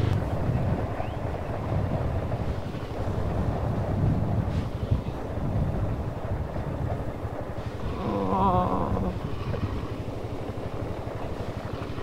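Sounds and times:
vehicle engine rumbling: 0.0s - 12.0s
wind buffeting microphone: 0.0s - 12.0s.

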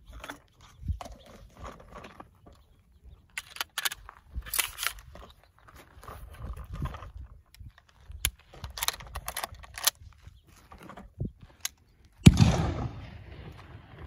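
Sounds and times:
metallic rifle clicks: 3.3s - 5.1s, 7.6s - 10.1s
rifle shot: 12.2s - 14.0s.

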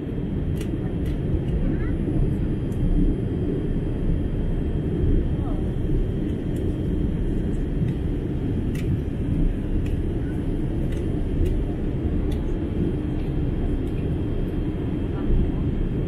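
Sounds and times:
jet engine and airflow roar: 0.0s - 16.0s
faint clicks: 8.7s - 9.0s.

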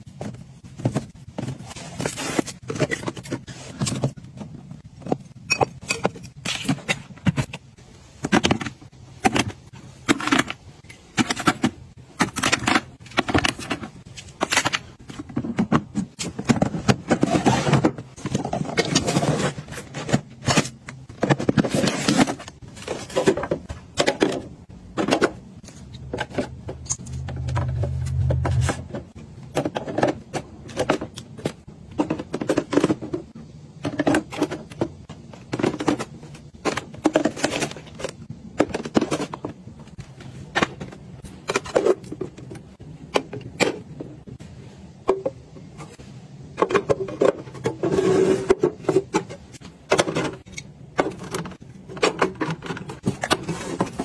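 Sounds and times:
plastic bins clicking and knocking: 0.0s - 54.0s
low hum: 26.6s - 29.0s.

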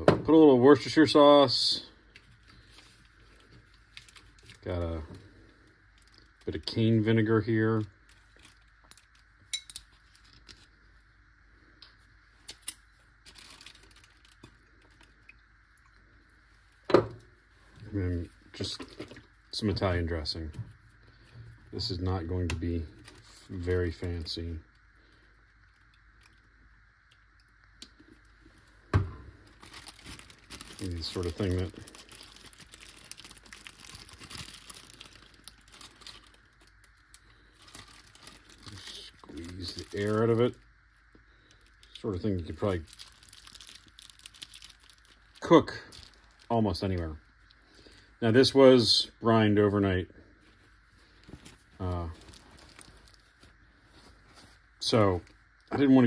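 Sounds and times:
bottle and plastic bag handling: 13.2s - 15.1s, 17.8s - 20.6s, 28.8s - 40.6s, 41.6s - 47.1s, 51.2s - 54.5s.

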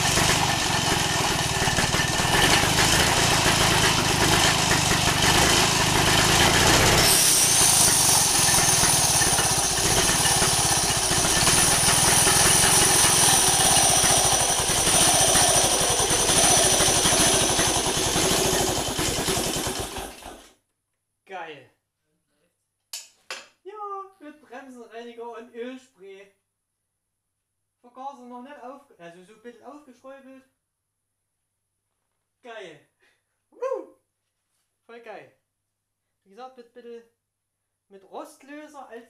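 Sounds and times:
two-stroke engine running: 0.0s - 20.5s.

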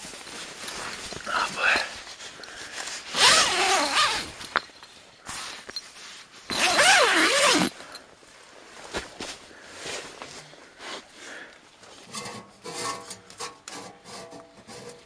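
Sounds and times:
tent zipper rasping: 3.0s - 4.4s, 6.5s - 7.8s.

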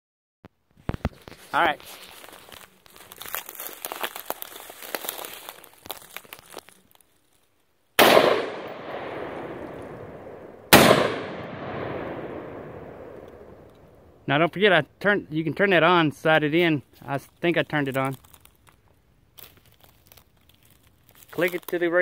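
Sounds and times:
crackling and clicks: 0.7s - 7.5s, 13.1s - 14.0s, 17.0s - 22.0s
gunshots with echo: 8.0s - 13.6s.

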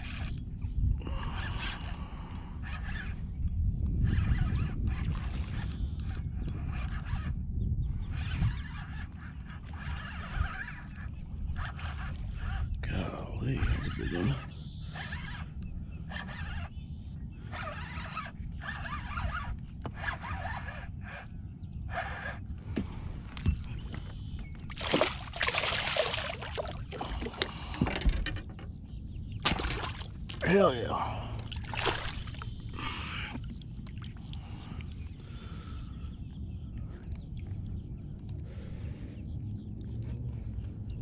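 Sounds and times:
fishing reel raspy whirr: 0.0s - 0.5s, 1.1s - 12.8s, 13.5s - 16.8s, 17.4s - 22.5s
person breathing heavily: 32.8s - 33.5s.

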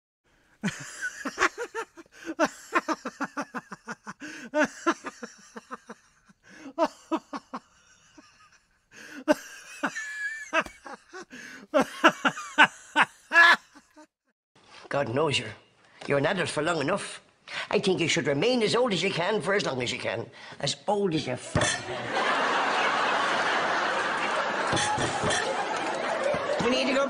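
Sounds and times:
hearty human laughter: 0.6s - 14.1s, 21.8s - 27.0s.

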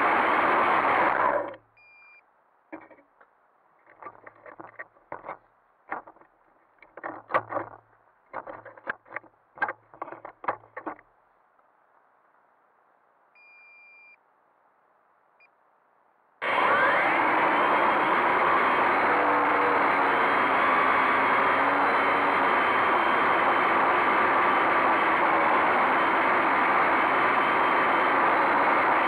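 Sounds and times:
short beep: 1.8s - 2.2s, 13.4s - 14.2s
drone propellers whirring: 16.4s - 29.0s.

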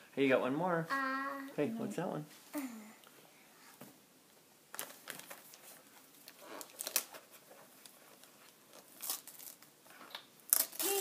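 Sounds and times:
gift wrap crinkling and tearing: 4.7s - 9.7s, 10.5s - 11.0s.

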